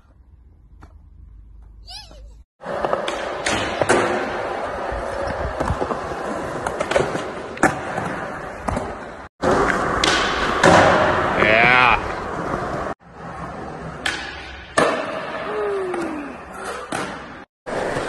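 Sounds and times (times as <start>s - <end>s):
skateboard wheels rolling on concrete: 2.6s - 18.0s.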